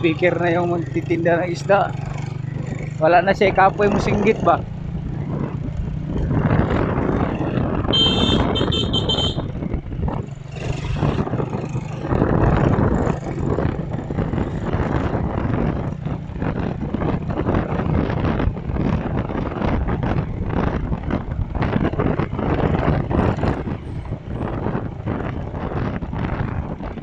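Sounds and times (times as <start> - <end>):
vehicle engine hum and road noise: 0.0 - 27.0
wind on microphone: 0.0 - 27.0.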